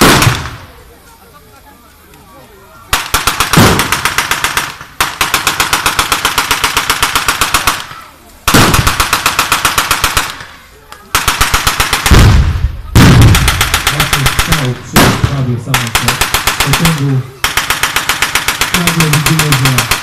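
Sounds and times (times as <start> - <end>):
machine gun bursts: 15.8 - 20.0.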